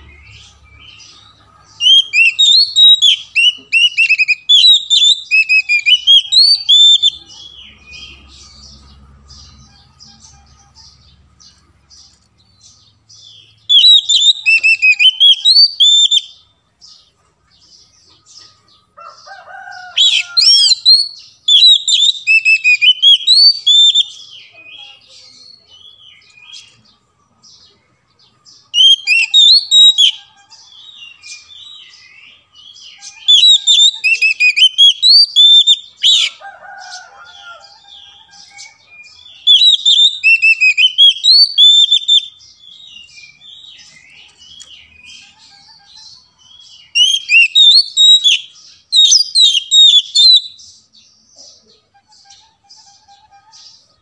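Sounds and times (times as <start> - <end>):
bird singing whistled phrases: 1.8 - 8.0, 13.7 - 16.4, 20.0 - 26.8, 28.7 - 30.2, 32.9 - 36.4, 38.1 - 50.6.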